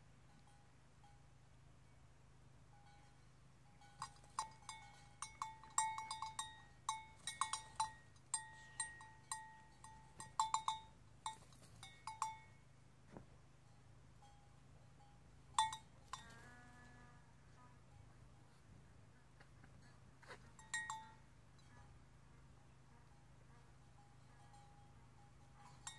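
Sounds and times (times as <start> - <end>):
sheep bell clanking: 0.2 - 1.4, 2.7 - 12.7, 13.6 - 16.4, 20.2 - 21.8, 24.0 - 25.9.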